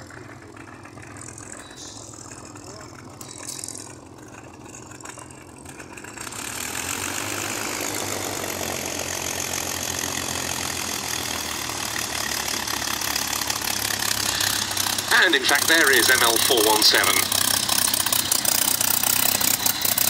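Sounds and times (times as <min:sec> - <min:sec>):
propeller plane engine running: 0:00.0 - 0:20.0.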